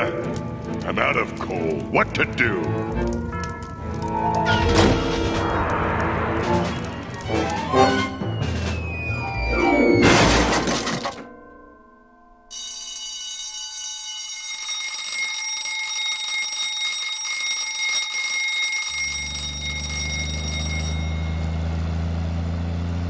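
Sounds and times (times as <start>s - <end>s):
bus engine hum: 2.7s - 9.2s, 19.2s - 23.0s
alarm clock bell ringing: 11.8s - 21.9s.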